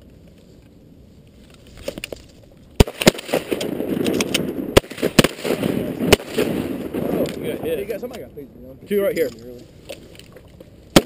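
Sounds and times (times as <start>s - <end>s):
shotgun shots: 2.8s - 7.6s.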